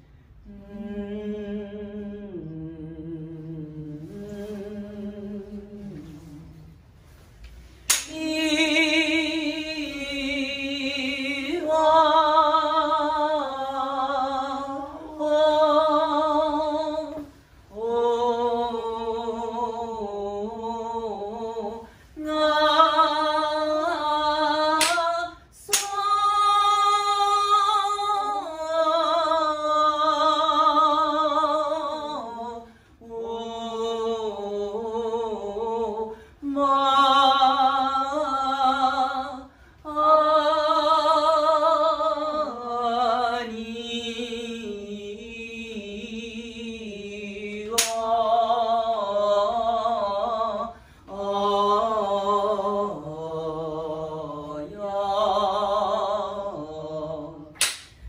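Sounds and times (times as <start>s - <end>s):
woman singing with vibrato: 0.0s - 7.2s, 7.8s - 58.0s.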